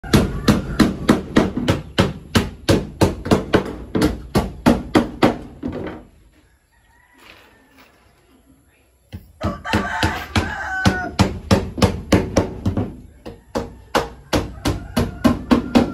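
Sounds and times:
distant rooster crowing: 0.0 - 1.8, 6.3 - 8.4, 9.2 - 15.9.

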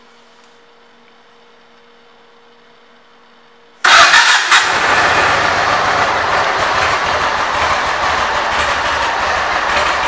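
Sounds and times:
motorcycle engine starting: 3.8 - 10.0.

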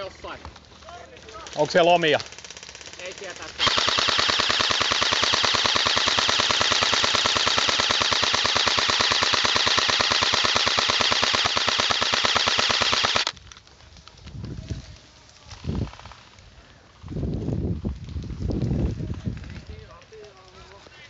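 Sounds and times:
airsoft rifle full-auto burst: 1.8 - 13.4.

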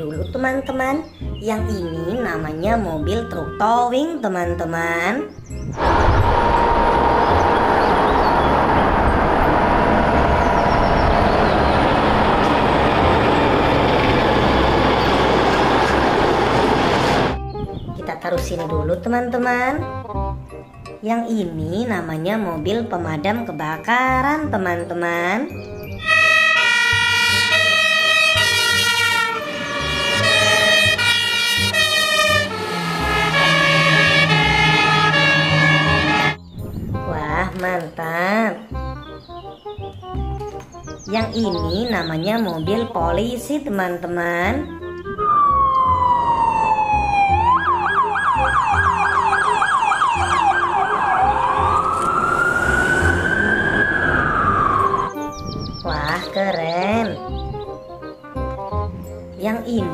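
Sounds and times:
two-tone fire engine sirens: 5.8 - 17.4, 26.0 - 36.4, 44.8 - 55.2.

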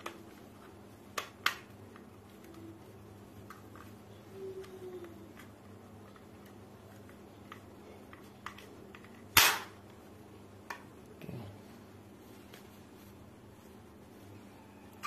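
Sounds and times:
airsoft pistol snap: 9.4 - 9.7.

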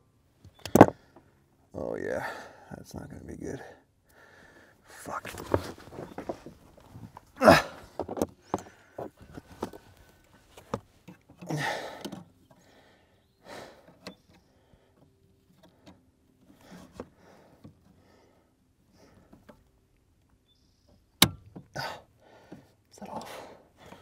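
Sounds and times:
metal clicks and knocks: 0.5 - 1.0
heavy breathing: 2.2 - 2.7, 3.6 - 6.6, 7.2 - 10.3, 11.5 - 15.1, 16.5 - 19.5, 21.8 - 24.0.

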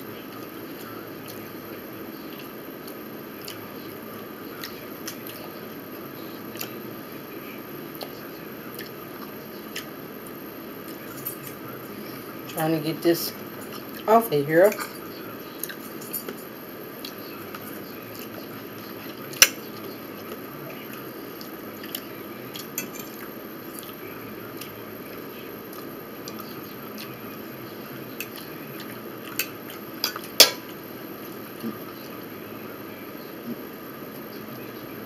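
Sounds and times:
chewing: 0.3 - 1.5, 2.2 - 3.9, 4.5 - 5.5, 6.5 - 6.8, 7.9 - 10.0, 14.8 - 16.4, 17.0 - 30.4.

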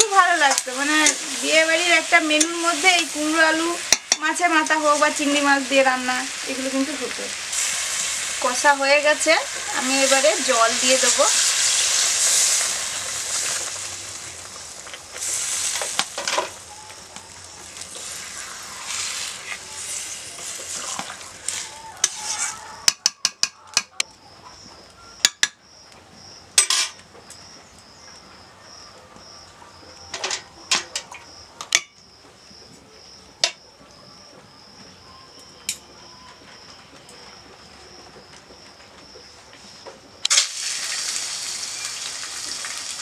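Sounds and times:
water hissing in hot pan: 0.0 - 22.8, 40.2 - 43.0
metal spatula scraping pan: 18.0 - 22.6.

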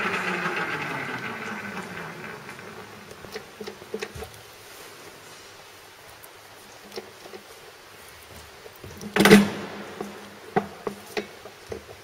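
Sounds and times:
machine spindle winding down: 0.0 - 4.1
levers clicking and clunking: 9.1 - 10.2.

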